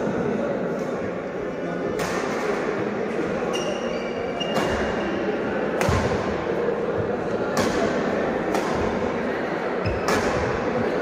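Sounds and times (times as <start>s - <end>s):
din of large hall: 0.0s - 11.0s
shoe squeaking on court: 3.4s - 5.2s, 9.8s - 10.2s
racket striking shuttlecock: 5.8s - 6.3s, 9.9s - 10.6s.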